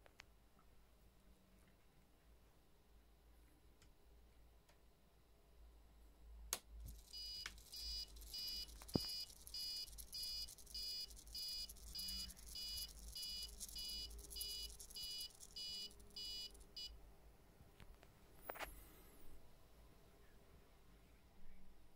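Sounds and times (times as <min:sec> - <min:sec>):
sharp clicks: 0:06.5 - 0:16.9
electronic buzzer high beeps: 0:06.9 - 0:17.0.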